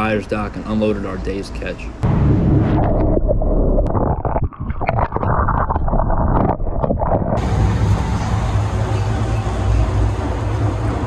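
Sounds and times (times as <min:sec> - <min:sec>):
low hum: 0:02.0 - 0:11.0
knocks and scrapes underwater: 0:02.2 - 0:07.4
muffled water sloshing: 0:02.4 - 0:07.7.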